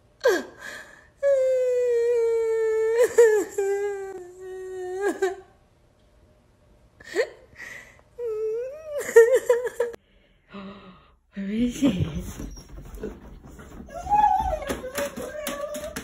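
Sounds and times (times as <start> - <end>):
person sobbing: 0.2 - 5.6, 7.0 - 10.0
person fake-crying wail: 13.9 - 16.0.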